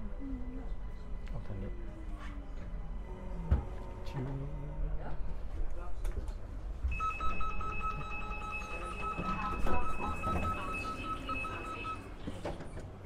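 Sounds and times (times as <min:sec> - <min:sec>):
rapid electronic door beeping: 0:07.0 - 0:12.2.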